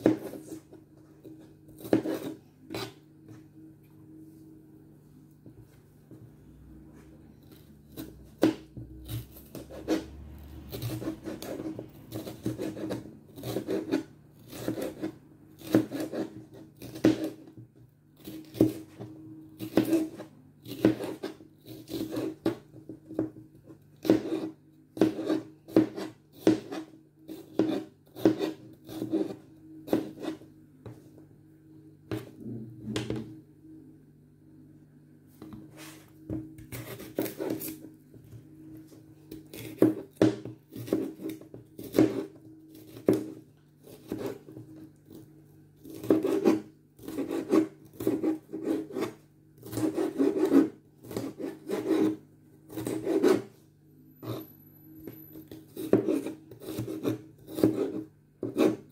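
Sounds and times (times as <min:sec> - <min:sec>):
knife chopping on plastic board: 0:00.0 - 0:00.7, 0:01.8 - 0:03.0, 0:07.9 - 0:10.1, 0:10.7 - 0:23.4, 0:24.0 - 0:31.0, 0:35.4 - 0:37.8, 0:39.3 - 0:45.2, 0:45.8 - 0:53.5, 0:55.0 - 0:58.9
faint low hum: 0:00.0 - 0:58.9.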